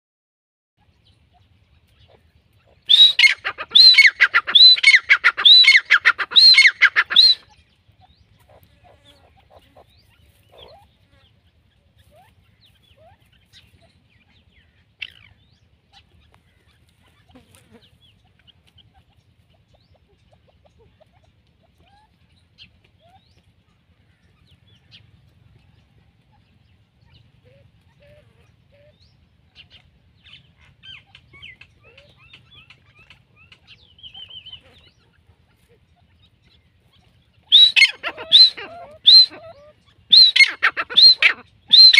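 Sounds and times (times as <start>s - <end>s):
francolin calling shrill notes: 37.5s - 39.4s, 40.1s - 41.9s.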